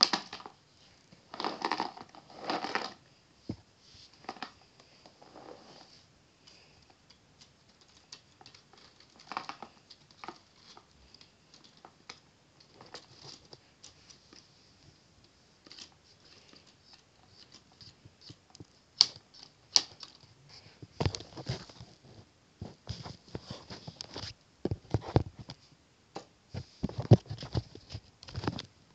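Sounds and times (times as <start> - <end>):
plastic parts rattling and clicking: 0.0 - 0.6, 1.3 - 3.0, 6.5 - 14.5, 15.6 - 22.0, 26.8 - 28.7.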